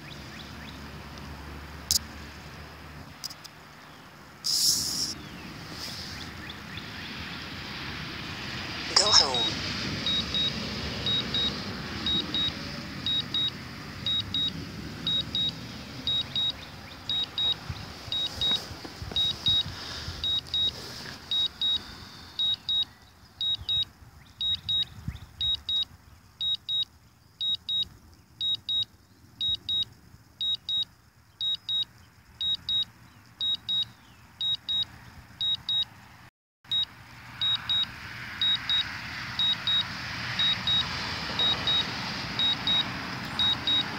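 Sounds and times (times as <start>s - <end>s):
high double beep alarm: 10.1s - 10.5s, 11.1s - 13.5s, 14.1s - 14.5s, 15.1s - 16.5s, 17.1s - 18.6s, 19.2s - 20.7s, 21.3s - 35.9s, 36.7s - 43.9s.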